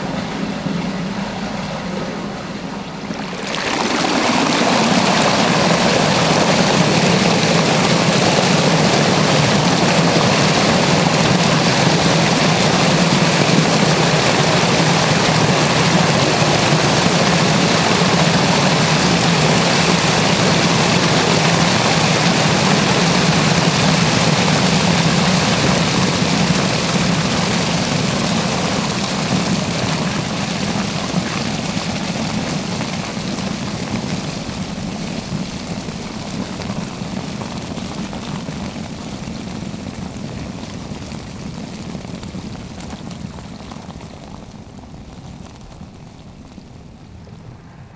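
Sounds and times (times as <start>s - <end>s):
water rushing down a drain: 2.9s - 47.9s
low hum: 46.4s - 47.9s.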